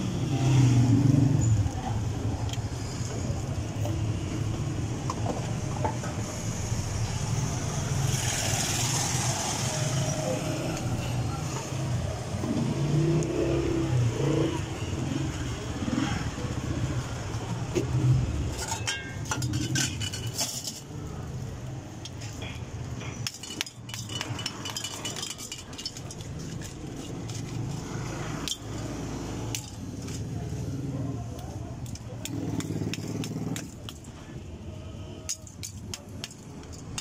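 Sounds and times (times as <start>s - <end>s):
street traffic rumble: 0.0s - 37.0s
metal spoon clinking in steel bowls: 18.5s - 21.0s, 22.0s - 27.7s, 28.4s - 28.8s.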